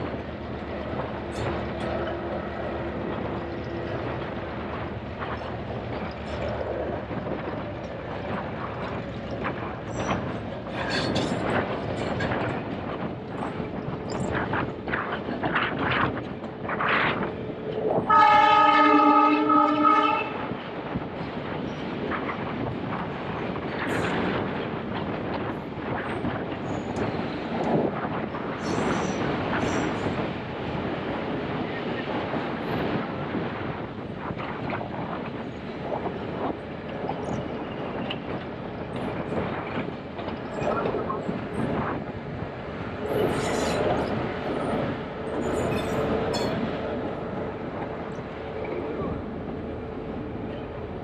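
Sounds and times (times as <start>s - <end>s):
train rumbling: 0.0s - 51.0s
train horn: 18.1s - 20.4s.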